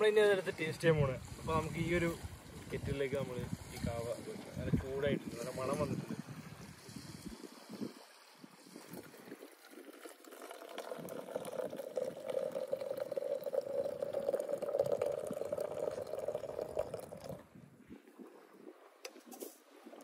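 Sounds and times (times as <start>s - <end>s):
coffee pouring into a pot: 6.1s - 17.4s.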